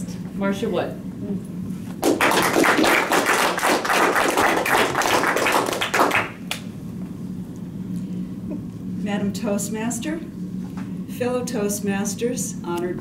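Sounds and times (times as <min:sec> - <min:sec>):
group applauding: 0:02.0 - 0:06.7.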